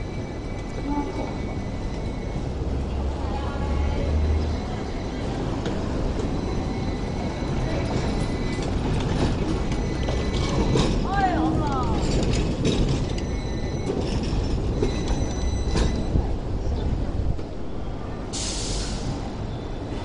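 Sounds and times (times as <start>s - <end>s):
high wheel squeal: 0.0s - 2.8s, 4.5s - 11.4s, 13.0s - 16.2s
tram rumbling on rails: 0.0s - 20.0s.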